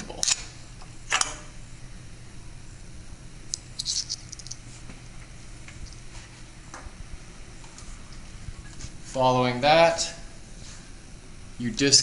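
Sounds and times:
low hum: 0:00.0 - 0:12.0.

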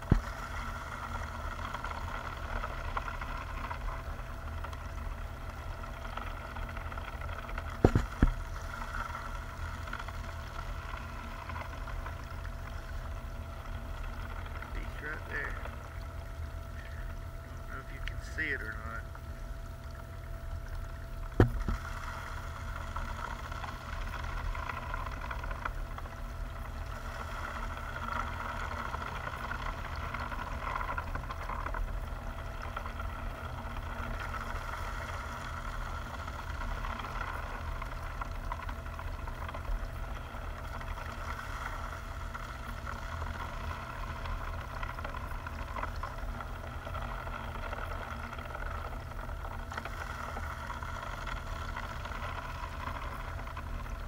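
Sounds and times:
low rumble: 0:00.0 - 0:36.4
water flowing through mesh screen: 0:07.5 - 0:54.0
sharp knock: 0:21.4 - 0:21.7.

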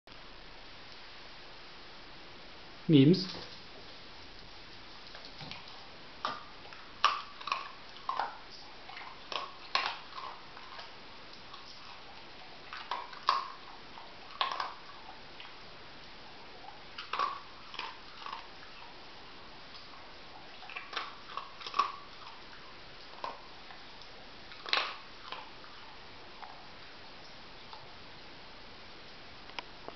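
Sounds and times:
kibble clicking on tiled floor: 0:04.4 - 0:12.0, 0:12.6 - 0:18.7, 0:19.7 - 0:25.5.

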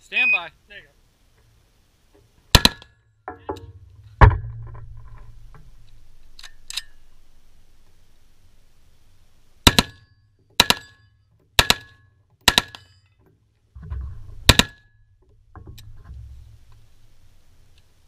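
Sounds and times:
rifle shots: 0:02.5 - 0:02.8, 0:09.6 - 0:11.0, 0:11.6 - 0:12.8, 0:14.5 - 0:14.8.

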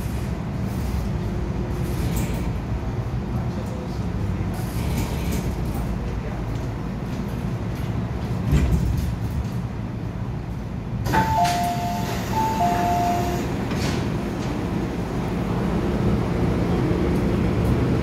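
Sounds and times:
train humming at platform: 0:00.0 - 0:18.0
two-note door chime: 0:11.1 - 0:13.5.

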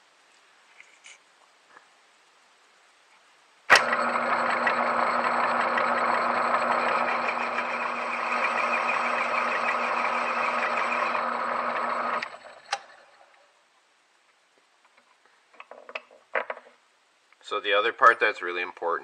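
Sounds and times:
metal lathe running: 0:03.7 - 0:13.2.

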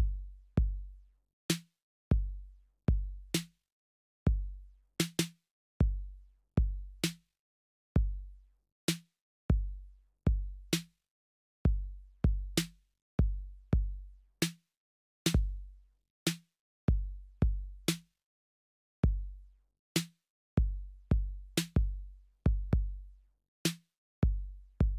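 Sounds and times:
deep kick drum: 0:00.0 - 0:00.9, 0:02.1 - 0:03.1, 0:04.3 - 0:04.6, 0:08.0 - 0:08.2, 0:09.5 - 0:10.7, 0:11.7 - 0:12.6, 0:15.4 - 0:15.6, 0:16.9 - 0:17.8, 0:19.0 - 0:19.4, 0:20.6 - 0:23.0, 0:24.2 - 0:24.9.

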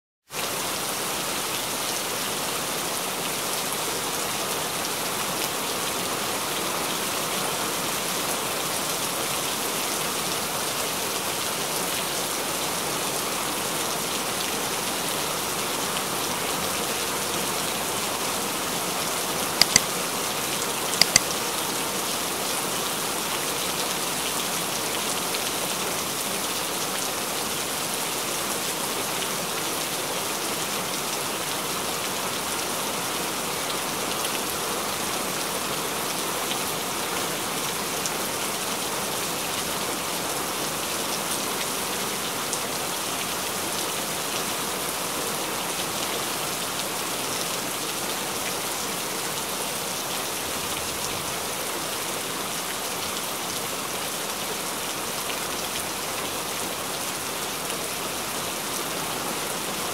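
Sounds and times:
steady rain: 0:00.2 - 0:59.9
quick double clicks: 0:19.6 - 0:19.8, 0:21.0 - 0:21.2.

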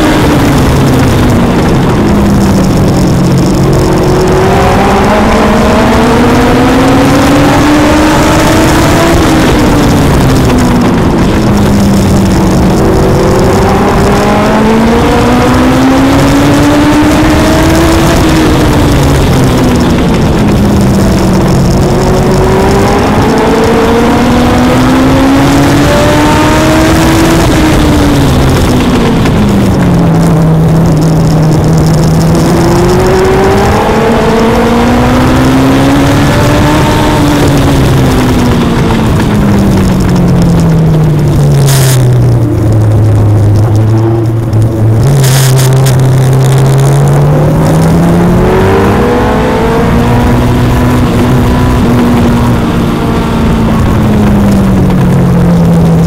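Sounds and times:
race car engine running hard: 0:00.0 - 0:56.0.

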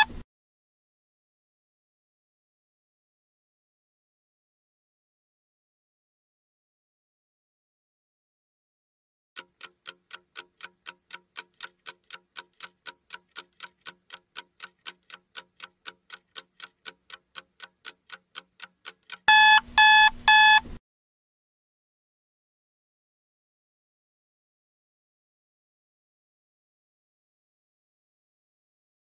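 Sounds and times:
clock ticking: 0:09.4 - 0:20.6
electronic alarm beeps: 0:19.3 - 0:20.6.

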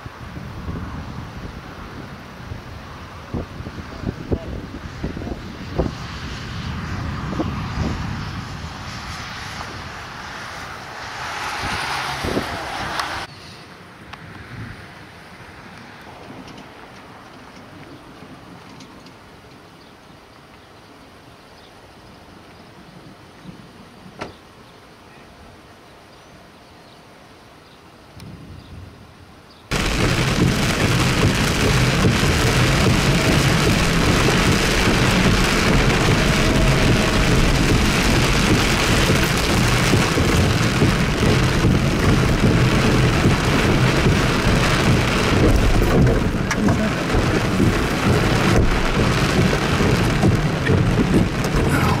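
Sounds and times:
heavy rain drumming on vehicle: 0:29.7 - 0:52.0.

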